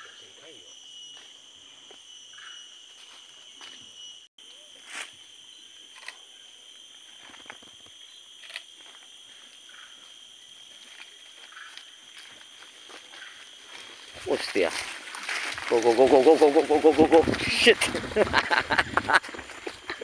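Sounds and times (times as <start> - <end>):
high-pitched insect chorus: 0.0 - 20.0.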